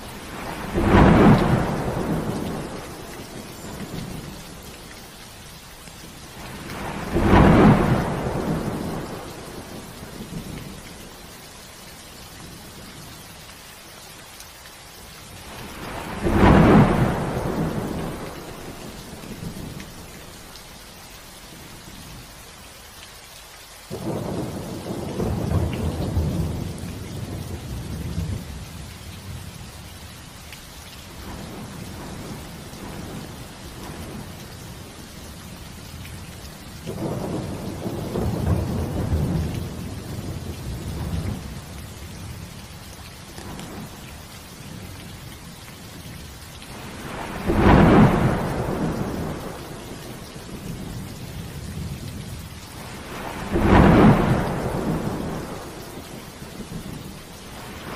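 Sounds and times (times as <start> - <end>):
thunder rumbling: 0.0 - 4.6, 6.4 - 11.1, 15.5 - 20.1, 23.9 - 28.6, 36.9 - 42.6, 46.7 - 57.9
steady rain: 0.0 - 57.9.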